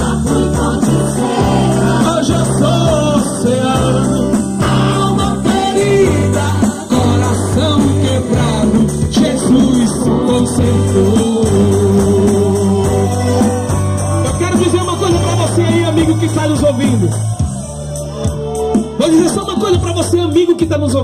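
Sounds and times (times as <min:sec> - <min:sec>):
people singing amplified: 0:00.0 - 0:14.3
gospel band playing: 0:00.0 - 0:21.0.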